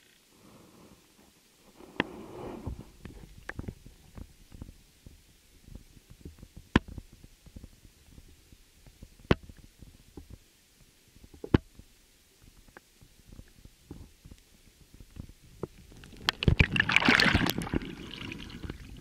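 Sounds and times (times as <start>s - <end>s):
low underwater rumbling: 2.1s - 10.4s.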